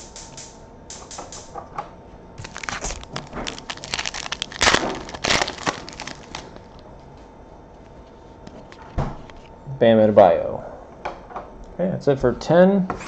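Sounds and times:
foil wrapper tearing and crinkling: 0:02.4 - 0:06.8.

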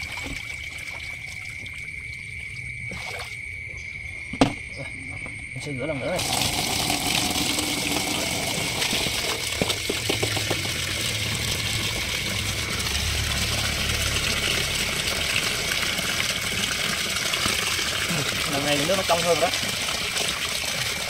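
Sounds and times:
tap water pouring into basin: 0:00.0 - 0:03.4, 0:06.1 - 0:21.0
fish splashing into water: 0:02.8 - 0:03.4.

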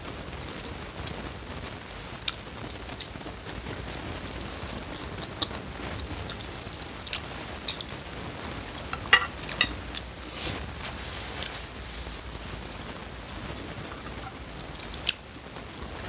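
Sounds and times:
wet chewing of noodles: 0:02.2 - 0:15.2
tissue rustling: 0:08.0 - 0:14.4
utensils clinking in ceramic bowl: 0:09.0 - 0:09.8
metal utensils clinking: 0:09.0 - 0:10.0.

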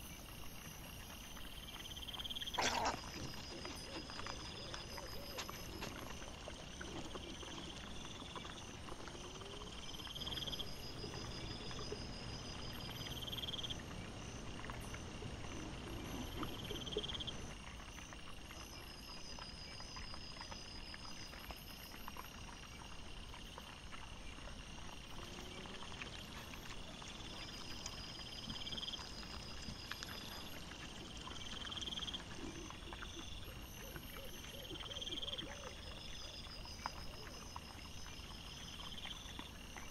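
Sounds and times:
low croaky grunts of boars: 0:00.0 - 0:39.9.

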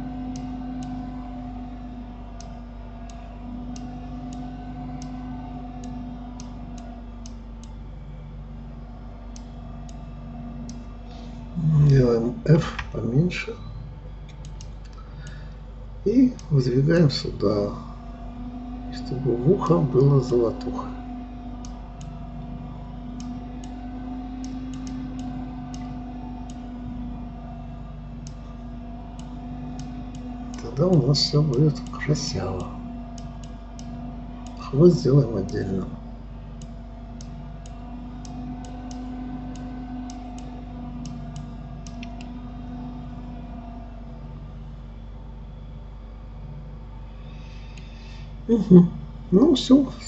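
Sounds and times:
low electrical hum: 0:00.0 - 0:50.0
computer mouse and keyboard clicks: 0:14.2 - 0:15.4, 0:23.1 - 0:26.8, 0:36.5 - 0:43.0
light sharp clicks: 0:14.2 - 0:15.4.

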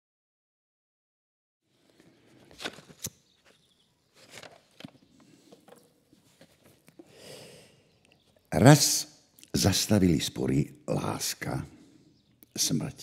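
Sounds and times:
quiet outdoor ambience: 0:01.7 - 0:13.0
paper sheets rustling: 0:01.8 - 0:06.9.

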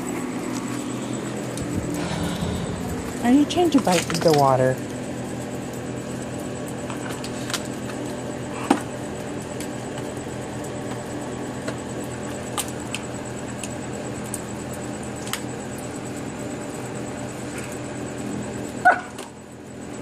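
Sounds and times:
rain falling: 0:02.8 - 0:04.8.

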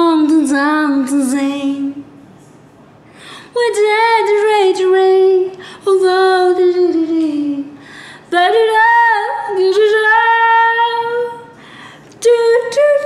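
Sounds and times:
woman singing unaccompanied: 0:00.0 - 0:02.0, 0:03.5 - 0:11.6, 0:12.2 - 0:13.0
singer breathing: 0:03.0 - 0:03.6, 0:07.8 - 0:08.3, 0:11.5 - 0:12.2.

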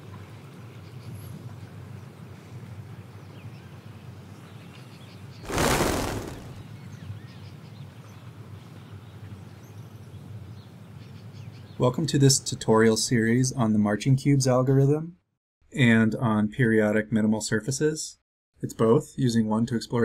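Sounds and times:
sudden whoosh: 0:05.5 - 0:06.6.

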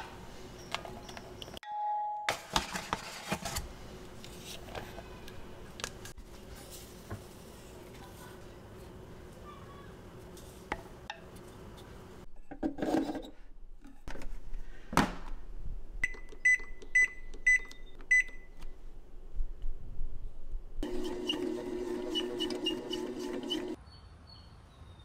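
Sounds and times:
bread maker kneading motor: 0:20.8 - 0:23.8.

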